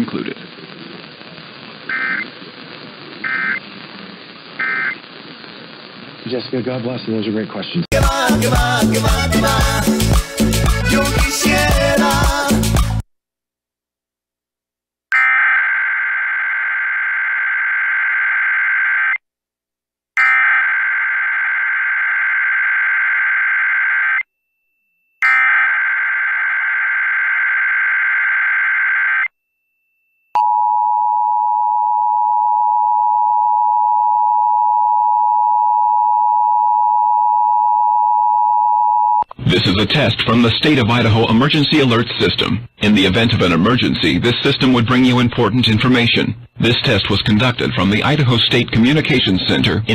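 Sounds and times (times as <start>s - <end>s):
harsh buzzing data screech: 1.9s - 2.4s, 3.2s - 3.7s, 4.6s - 5.0s, 20.2s - 23.2s, 25.2s - 29.3s.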